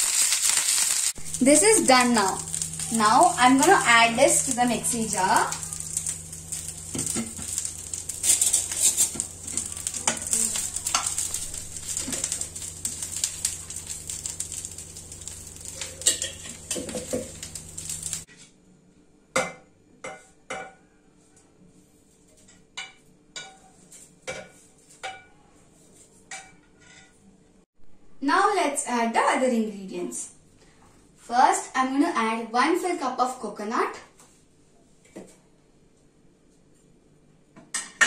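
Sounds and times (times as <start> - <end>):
leaves sizzling in a frying pan: 0.0 - 18.3
spatula scraping a pan: 1.9 - 18.5, 22.1 - 27.2.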